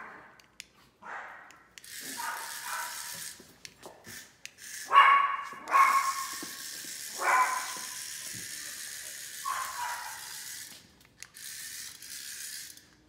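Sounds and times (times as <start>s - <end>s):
dog barking: 1.0s - 1.5s, 2.1s - 3.1s, 4.9s - 6.3s, 7.2s - 7.9s, 9.4s - 10.4s.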